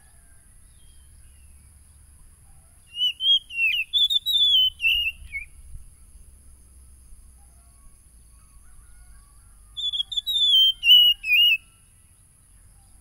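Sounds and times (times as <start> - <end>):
bird singing warbling whistles: 2.9 - 5.7, 9.7 - 12.0.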